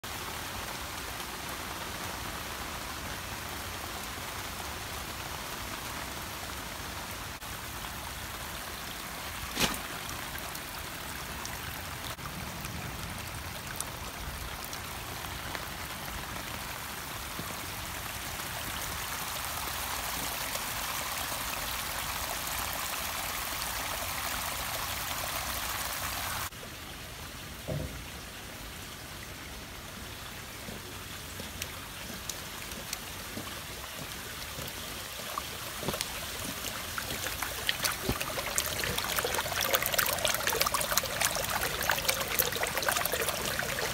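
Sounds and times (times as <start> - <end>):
runoff water rushing: 0.0 - 43.9
heavy rain falling: 30.4 - 43.9.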